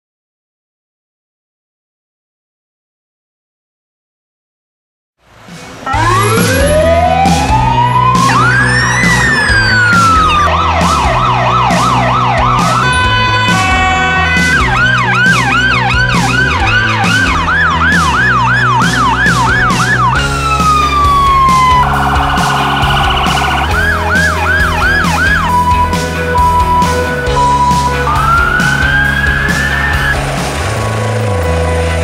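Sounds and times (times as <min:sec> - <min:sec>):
background music with steady beat: 0:05.4 - 0:32.0
emergency vehicle sirens: 0:05.6 - 0:32.0
harsh buzzing horn blast: 0:12.4 - 0:20.3.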